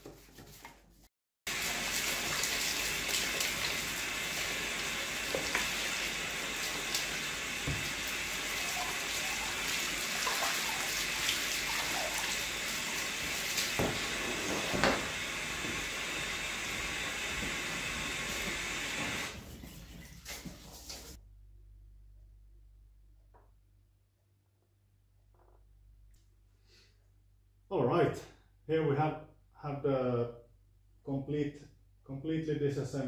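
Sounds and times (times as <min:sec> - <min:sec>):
water running from a hose: 0:01.5 - 0:21.2.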